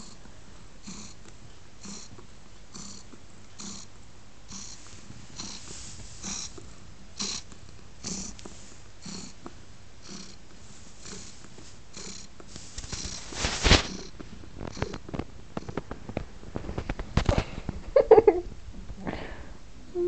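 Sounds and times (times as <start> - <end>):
cat purring: 0.0 - 18.3
knocks and rustles: 12.4 - 18.1.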